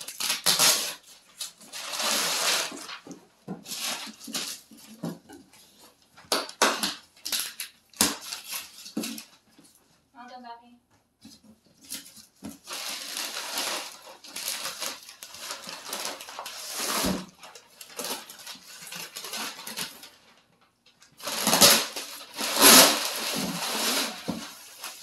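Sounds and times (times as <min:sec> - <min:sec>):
paper tearing and crumpling: 0:00.0 - 0:04.7, 0:06.3 - 0:09.3, 0:11.9 - 0:20.3, 0:21.2 - 0:25.0.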